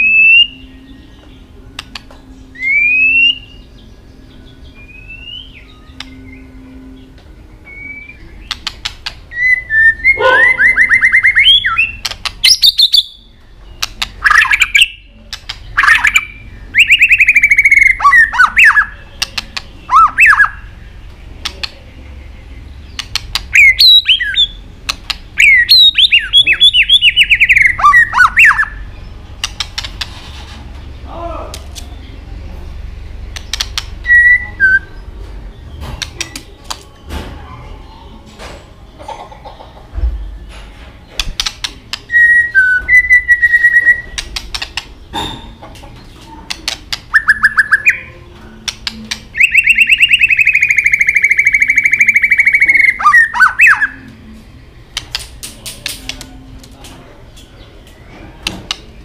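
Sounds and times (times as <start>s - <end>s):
bird song with whistled notes: 0.0s - 31.2s, 31.8s - 38.3s, 39.6s - 55.0s
sharp clicking bird calls: 1.2s - 3.5s, 4.9s - 6.2s, 7.7s - 9.3s, 10.0s - 21.9s, 22.8s - 30.2s, 33.3s - 34.9s, 35.7s - 36.9s, 41.1s - 54.2s, 54.9s - 58.9s.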